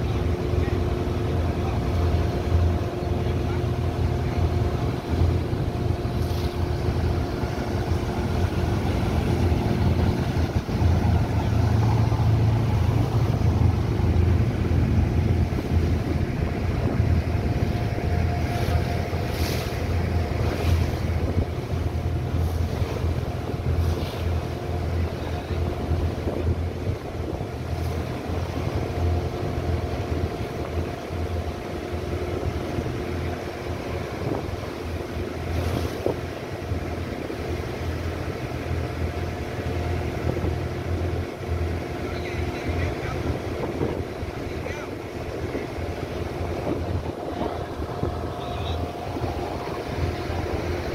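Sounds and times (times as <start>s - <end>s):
boat engine droning: 0.0s - 50.9s
water washing past hull: 0.0s - 50.9s
wind on microphone: 43.0s - 50.9s.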